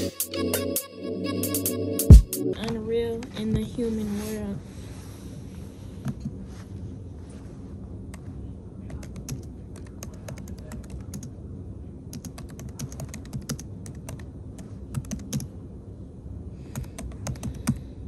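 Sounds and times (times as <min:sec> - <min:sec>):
low room hum: 0:00.0 - 0:18.0
keyboard typing clicks: 0:12.1 - 0:15.5, 0:16.7 - 0:17.8.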